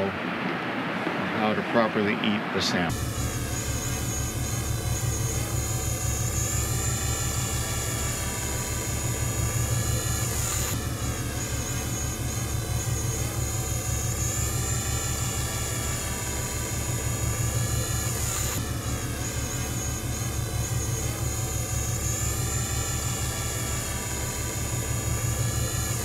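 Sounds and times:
boat engine throbbing: 0.0s - 26.0s.

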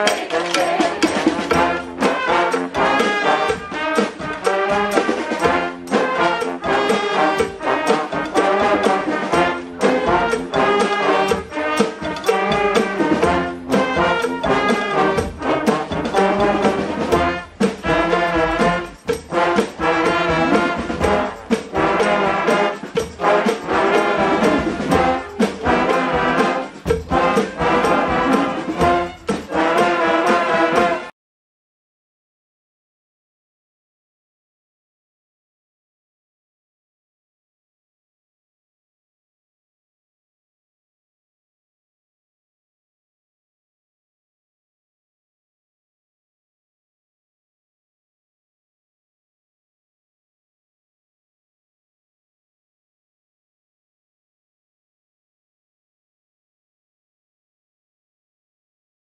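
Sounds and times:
brass band playing: 0.0s - 31.1s
steady drum beat: 0.0s - 31.1s.

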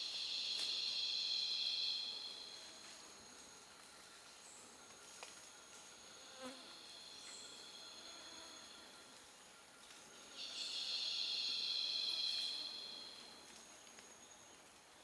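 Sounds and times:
loud high insect drone: 0.0s - 4.6s, 5.8s - 9.2s, 10.4s - 14.2s
insects calling: 0.0s - 4.7s, 6.1s - 14.6s.

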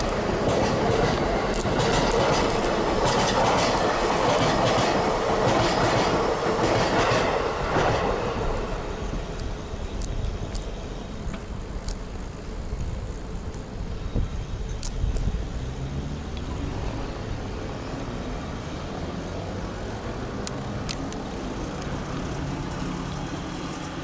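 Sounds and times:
train wheels clacking: 0.0s - 11.4s.

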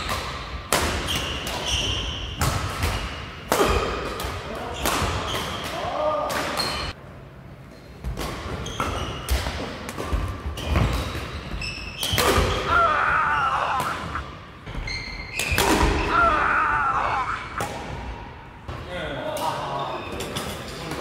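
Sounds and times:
racket hitting shuttlecock: 12.0s - 12.7s, 15.3s - 16.1s.

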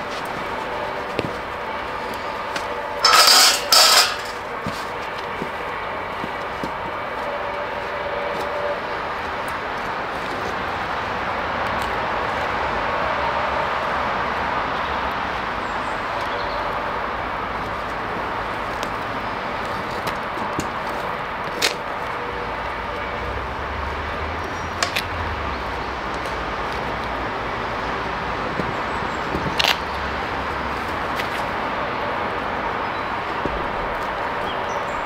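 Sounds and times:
gas burner rushing: 0.6s - 5.3s.

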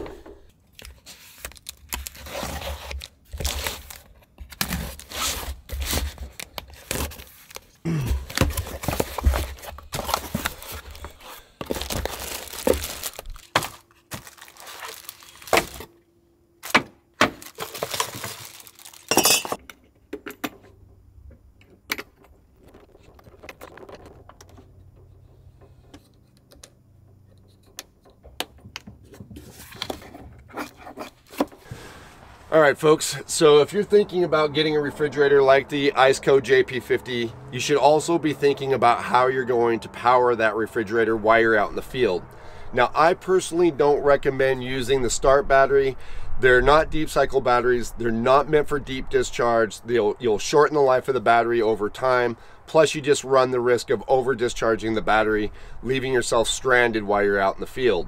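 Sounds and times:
packaging rustling: 0.8s - 15.9s, 16.6s - 19.6s
knocks and clinks of parts: 16.7s - 30.2s.

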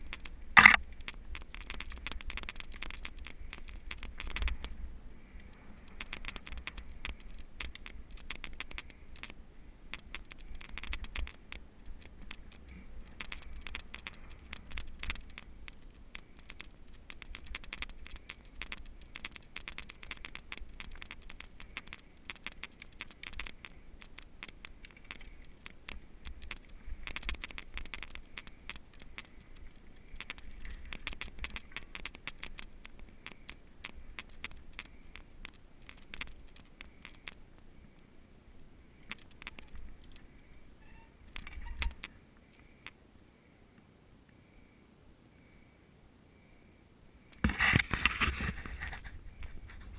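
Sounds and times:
bike tyres rattling on dirt: 0.0s - 37.5s.

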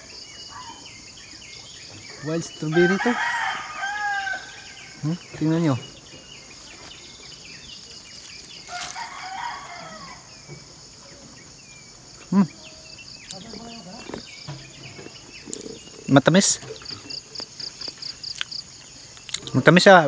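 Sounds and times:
chickens clucking: 0.0s - 19.9s
bird chirps: 0.0s - 20.0s
rooster crowing: 2.2s - 5.1s, 8.6s - 10.4s.

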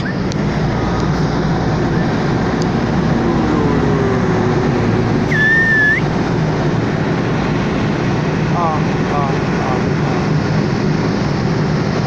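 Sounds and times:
truck engine hum and road noise: 0.0s - 12.0s
short high whistle tone: 5.3s - 6.0s.

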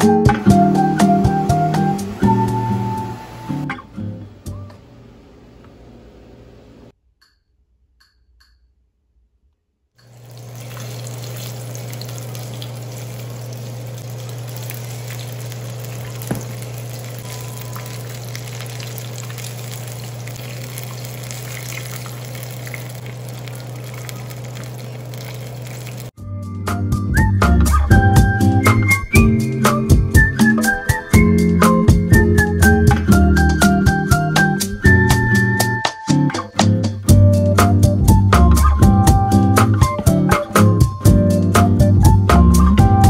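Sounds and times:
hot oil sizzling and crackling: 10.0s - 26.2s
steady low hum: 10.1s - 26.1s.

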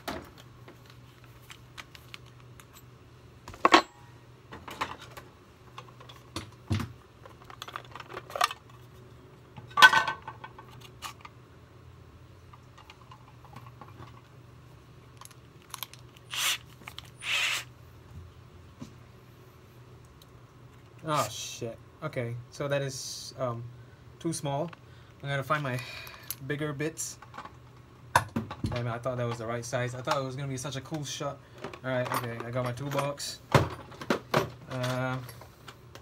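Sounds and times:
low steady hum: 0.0s - 36.0s
short noisy bursts: 17.2s - 17.7s.

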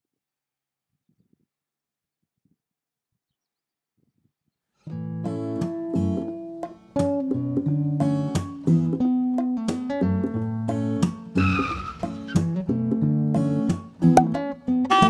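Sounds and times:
acoustic guitar strumming chords: 12.4s - 15.0s.

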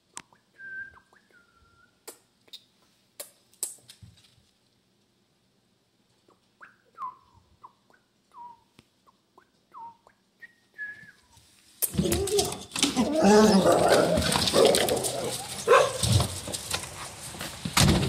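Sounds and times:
dog whimpering: 12.0s - 15.7s.

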